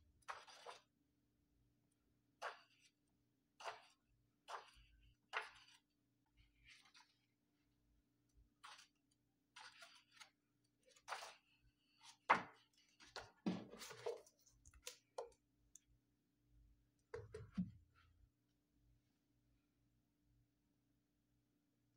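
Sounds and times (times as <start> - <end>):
book pages turning: 3.6 - 5.9, 6.6 - 7.3, 8.6 - 15.2.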